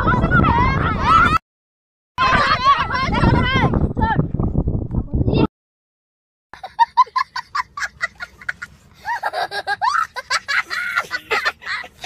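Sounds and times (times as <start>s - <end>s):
child laughing: 6.6s - 12.0s.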